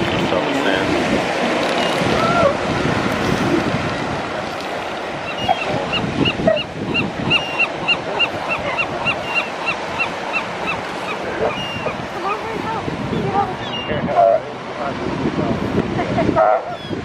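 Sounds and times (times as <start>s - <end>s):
surf washing on beach: 0.0s - 17.0s
wind on microphone: 0.0s - 17.0s.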